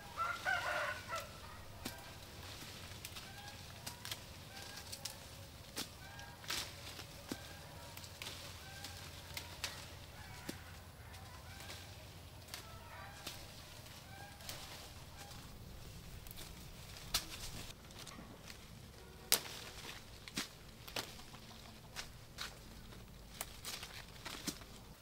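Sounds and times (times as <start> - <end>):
faint bird calls: 0.0 - 15.8
leaves rustling: 0.0 - 25.0
fruit stems snapping: 0.2 - 15.4, 16.2 - 18.6, 19.3 - 25.0.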